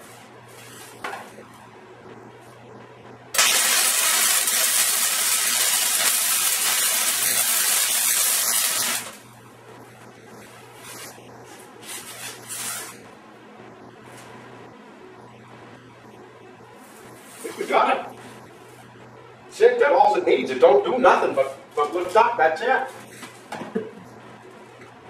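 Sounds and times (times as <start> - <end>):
welding arc crackling hiss: 3.3 - 9.3.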